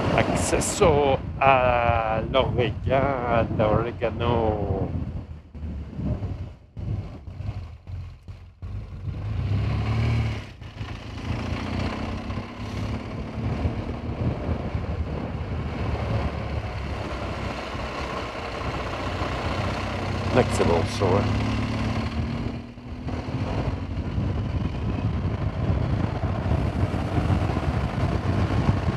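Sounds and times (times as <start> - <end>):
motorcycle engine running: 10.4 - 28.9.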